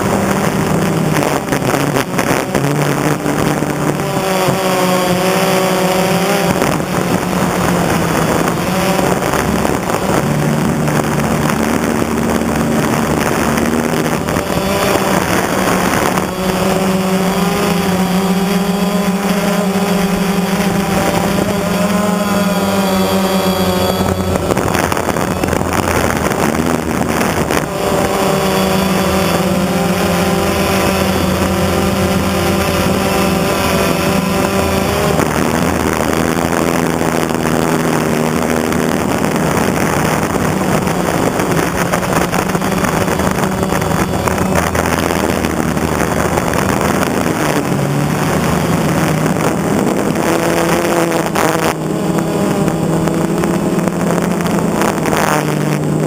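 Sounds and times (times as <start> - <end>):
drone propellers buzzing: 0.0 - 56.0
wind noise on microphone: 0.0 - 56.0.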